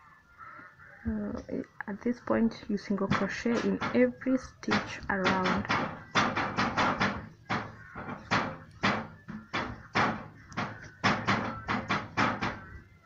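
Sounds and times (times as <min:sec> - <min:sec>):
sharp knocks: 0:03.0 - 0:12.8.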